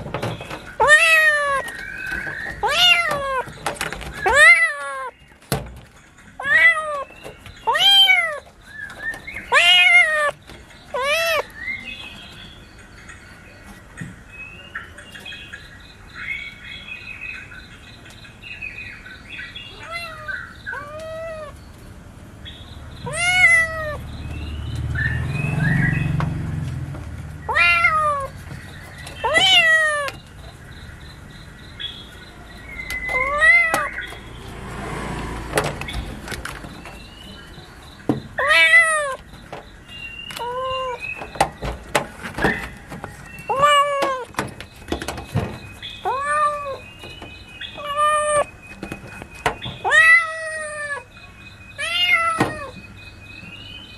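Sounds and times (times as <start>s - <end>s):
kittens meowing: 0.8s - 1.8s, 2.6s - 3.5s, 4.2s - 5.2s, 6.4s - 8.5s, 9.4s - 11.5s, 19.7s - 21.6s, 23.0s - 24.0s, 27.4s - 28.5s, 29.2s - 30.2s, 33.1s - 34.2s, 38.4s - 39.3s, 40.3s - 41.1s, 43.4s - 44.4s, 46.0s - 46.8s, 47.8s - 48.5s, 49.8s - 51.1s, 51.8s - 52.8s.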